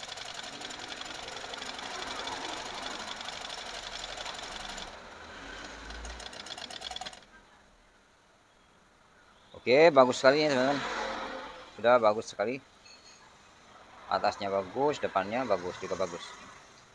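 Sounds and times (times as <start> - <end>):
sewing machine stitching: 0.0 - 7.3.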